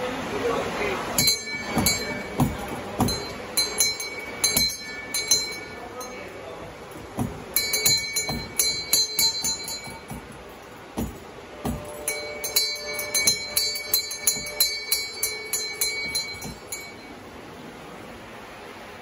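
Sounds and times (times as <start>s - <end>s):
dull knocks: 1.2s - 5.7s, 6.9s - 16.9s
brass bell clanging: 1.2s - 17.2s.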